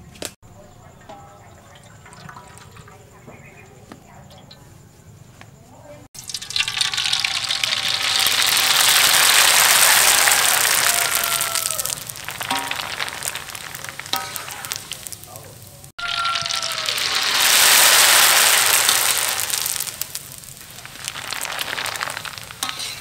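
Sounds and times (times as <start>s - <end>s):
noodles sizzling in hot oil: 6.2s - 23.0s.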